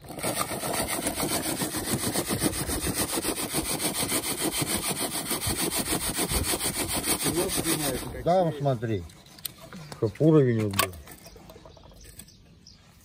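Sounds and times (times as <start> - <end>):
grit rattling in a sieve: 0.0 - 4.6.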